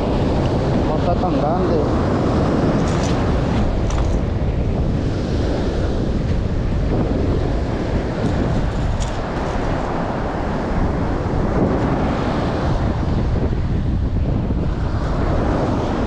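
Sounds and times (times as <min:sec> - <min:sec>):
ocean surf: 0:00.0 - 0:16.0
wind noise on microphone: 0:00.0 - 0:16.0.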